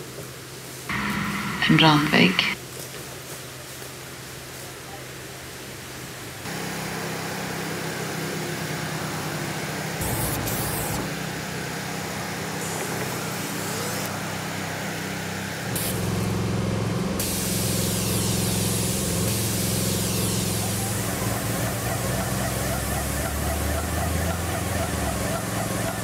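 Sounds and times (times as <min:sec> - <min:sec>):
hiss: 0:06.5 - 0:11.2, 0:12.1 - 0:16.3, 0:17.2 - 0:26.0
low engine hum: 0:06.6 - 0:26.0.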